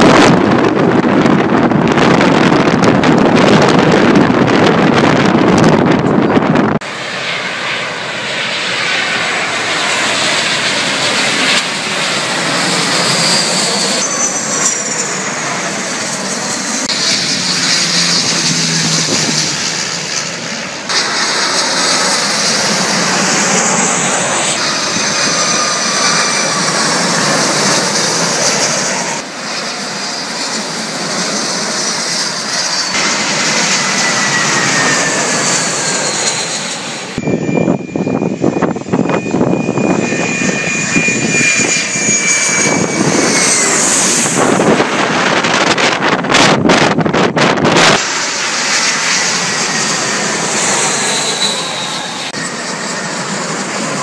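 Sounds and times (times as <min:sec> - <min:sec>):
wind buffeting microphone: 0:00.0 - 0:06.9, 0:09.8 - 0:20.2, 0:30.4 - 0:51.8
jet engines passing overhead: 0:00.0 - 0:54.0.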